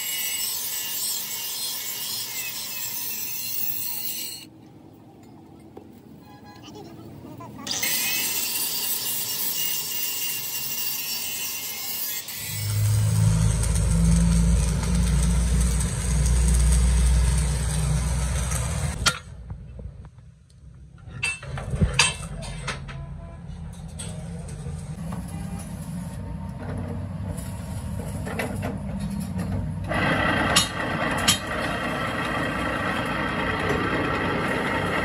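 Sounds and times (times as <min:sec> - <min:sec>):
heavy engine rumbling: 0:12.5 - 0:20.0, 0:20.7 - 0:35.0.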